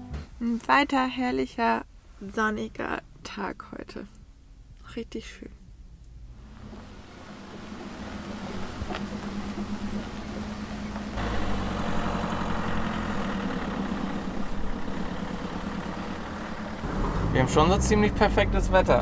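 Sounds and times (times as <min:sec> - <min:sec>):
tyres on sandy ground: 0:06.0 - 0:19.0
van engines running: 0:06.2 - 0:19.0.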